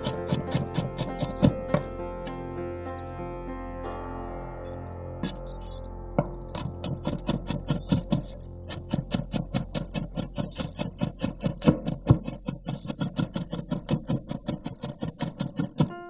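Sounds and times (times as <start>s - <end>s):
knife chopping on wooden board: 0.0s - 1.8s, 6.6s - 16.0s.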